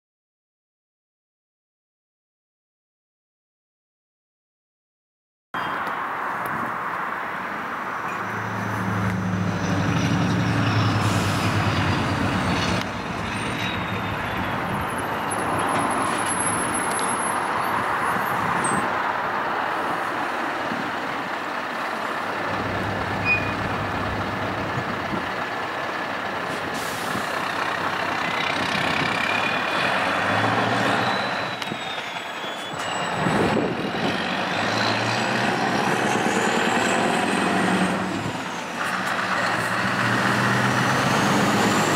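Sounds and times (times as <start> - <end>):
diesel truck engine accelerating: 8.2 - 41.9
air brakes hissing: 10.9 - 11.7, 26.5 - 27.4
thin high whistle: 23.2 - 23.6, 31.0 - 33.2.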